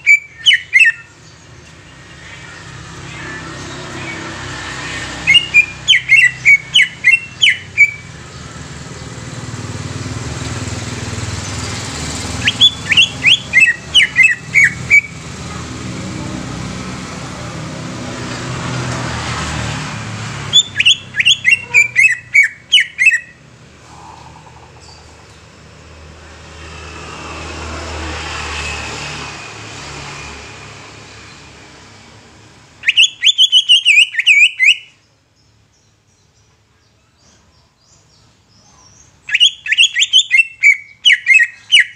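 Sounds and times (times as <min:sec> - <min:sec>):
bird calling sharp sliding notes: 0:01.8 - 0:08.1, 0:12.3 - 0:15.2, 0:20.5 - 0:25.3, 0:32.8 - 0:34.9.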